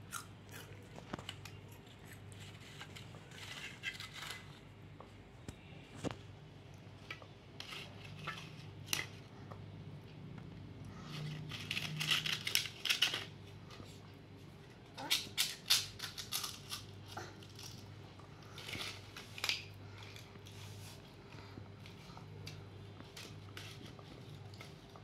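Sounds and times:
crispy snacks crackling and snapping: 0.0s - 4.8s, 10.9s - 13.5s, 14.9s - 20.4s.

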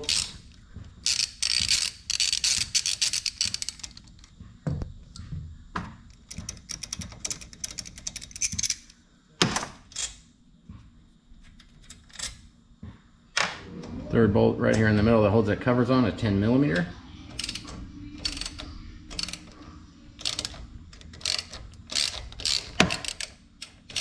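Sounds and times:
ratchet wrench clicking: 0.0s - 4.1s, 6.3s - 9.0s, 17.3s - 19.6s, 20.2s - 24.0s.

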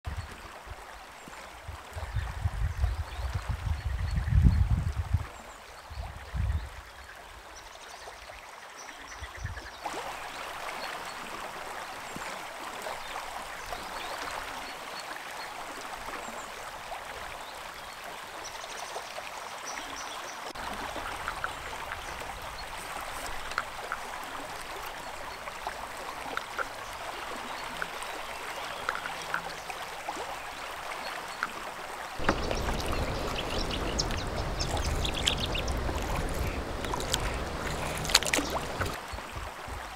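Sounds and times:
river water rushing: 19.5s - 39.9s
short faint calls: 32.2s - 39.0s.

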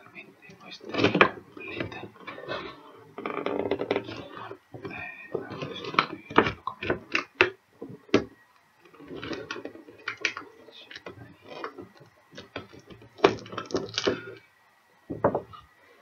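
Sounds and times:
cardboard rustling and scraping: 8.9s - 14.4s.

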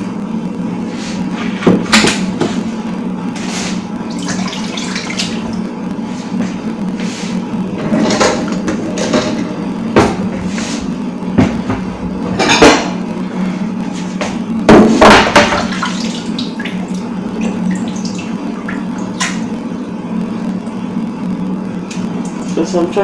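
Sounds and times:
steady low hum: 0.0s - 23.0s
water splashing in sink: 4.1s - 5.6s, 15.0s - 19.5s.

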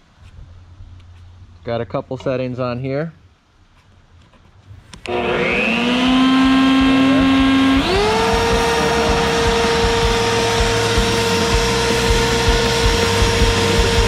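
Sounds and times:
leaf blower whining: 5.0s - 14.0s.

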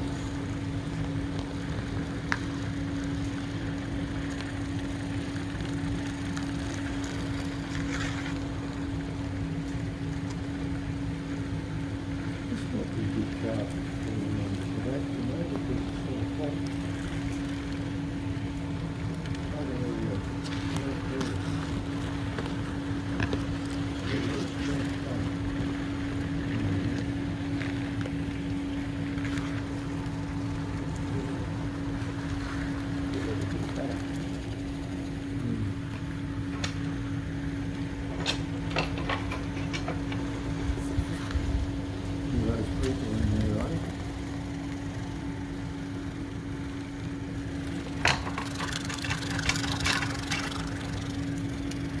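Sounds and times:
mechanical drive hum: 0.0s - 52.0s.

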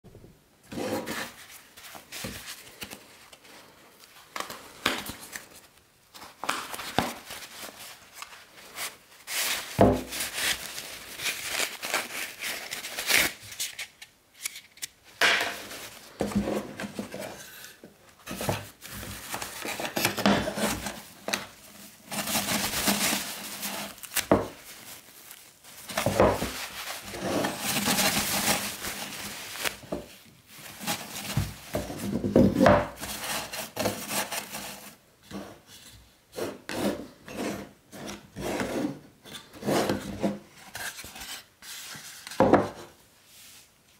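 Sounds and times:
toilet paper rustling and tearing: 0.7s - 35.0s
cardboard roll tearing: 18.3s - 34.9s.

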